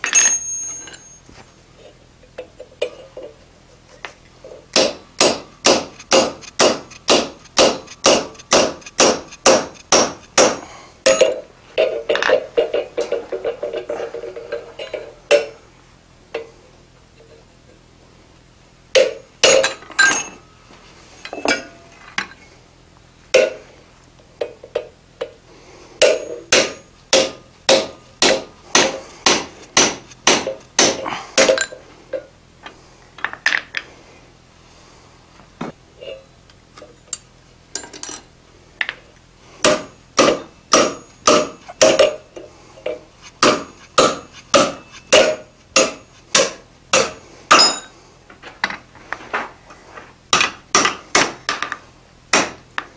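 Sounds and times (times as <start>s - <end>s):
hammer striking punch on anvil: 4.8s - 11.4s, 26.0s - 31.7s, 39.6s - 42.2s, 43.4s - 47.9s, 52.3s - 52.6s.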